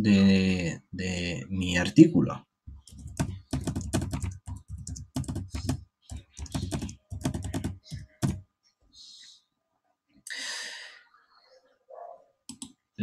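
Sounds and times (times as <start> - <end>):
typing on a computer keyboard: 2.8 - 8.4, 12.5 - 12.7.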